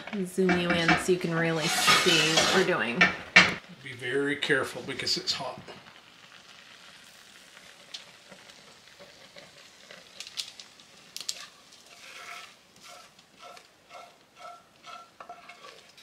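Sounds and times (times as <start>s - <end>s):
wooden spoon scraping pot: 0.0s - 3.6s, 11.3s - 16.0s.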